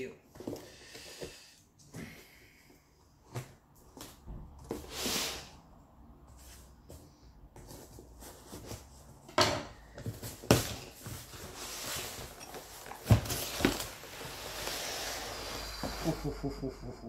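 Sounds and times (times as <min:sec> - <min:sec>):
cardboard rustling and scraping: 0:07.6 - 0:09.3, 0:09.9 - 0:16.2
box thumping: 0:13.0 - 0:13.9.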